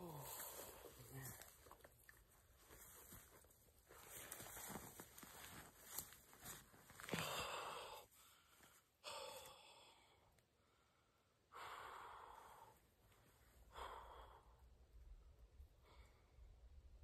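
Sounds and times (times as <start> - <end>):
man breathing hard: 7.0 - 13.0, 13.6 - 14.8.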